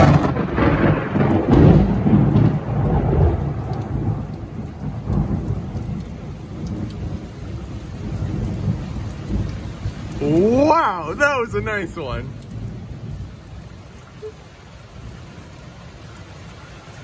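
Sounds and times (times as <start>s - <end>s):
thunder rolling: 0.0s - 13.3s
heavy rain pouring: 0.0s - 17.0s.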